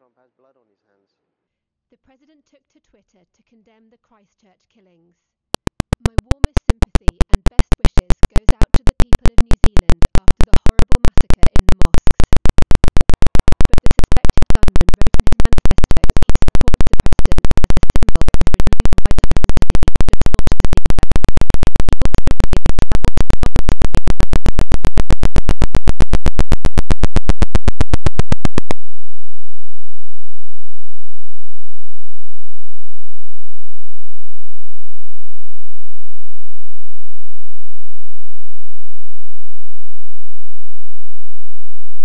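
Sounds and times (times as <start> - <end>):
sharp electronic clicks: 5.6 - 29.4.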